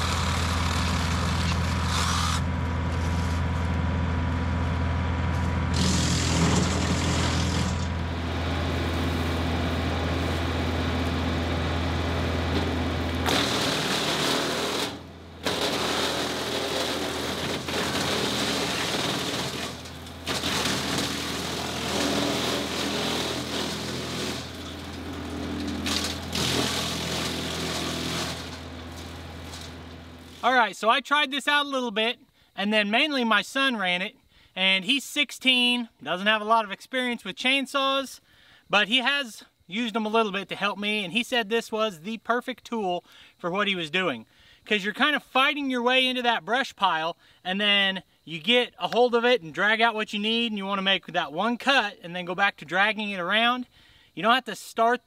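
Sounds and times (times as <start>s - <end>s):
wood chipper chipping branches: 0.0s - 30.5s.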